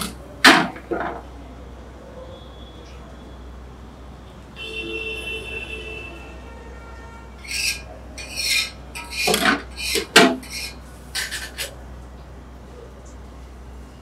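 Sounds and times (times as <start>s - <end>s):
glass door scraping along track: 7.4s - 11.8s.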